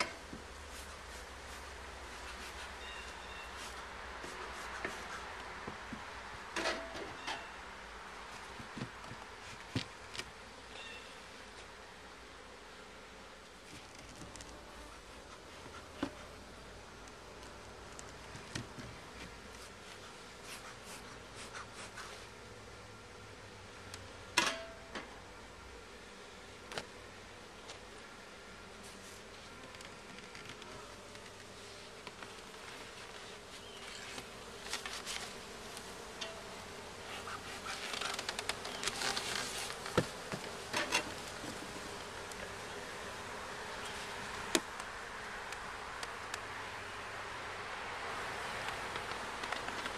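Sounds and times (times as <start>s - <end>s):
bees buzzing: 0.0s - 49.9s
clicks and knocks on hive: 8.5s - 10.4s, 17.0s - 20.1s, 37.1s - 42.6s, 48.6s - 49.9s.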